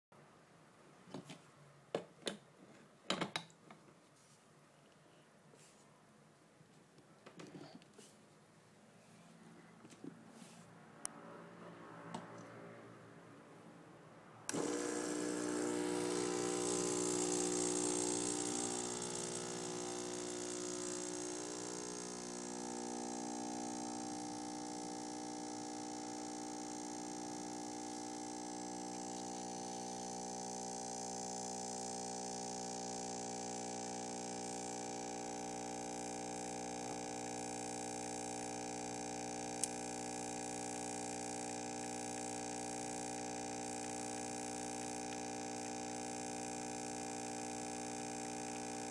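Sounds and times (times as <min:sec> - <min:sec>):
espresso machine pump humming: 0:14.5 - 0:48.9.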